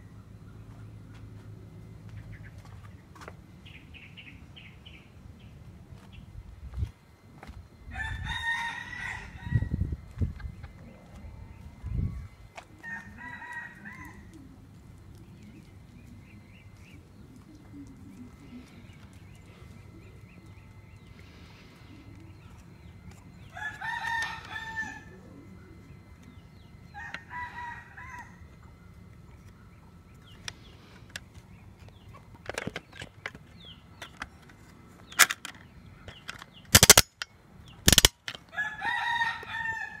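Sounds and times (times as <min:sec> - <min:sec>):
rooster crowing: 0:07.9 - 0:09.8, 0:12.8 - 0:14.4, 0:23.5 - 0:25.4, 0:26.9 - 0:28.6, 0:38.5 - 0:40.0.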